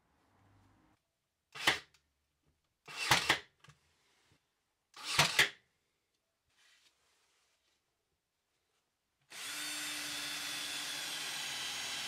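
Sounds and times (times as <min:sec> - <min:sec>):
nail gun firing: 0:01.6 - 0:01.9, 0:02.9 - 0:03.5, 0:05.0 - 0:05.6.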